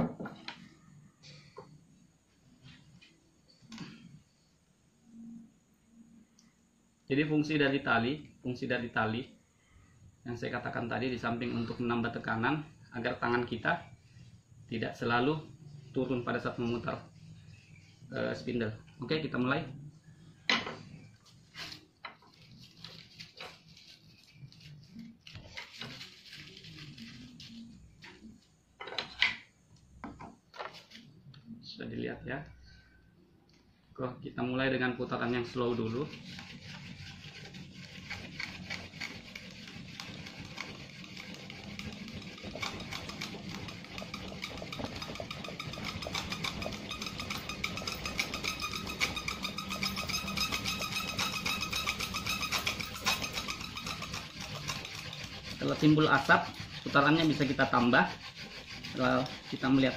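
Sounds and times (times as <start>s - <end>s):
rustling of twine and dry leaves: 21.5s - 27.8s
wooden hand drill rasping: 35.3s - 59.9s.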